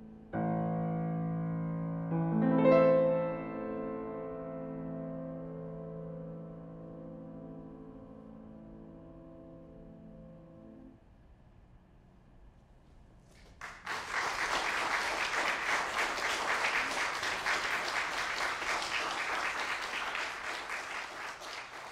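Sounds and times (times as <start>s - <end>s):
audience applause: 13.4s - 21.9s.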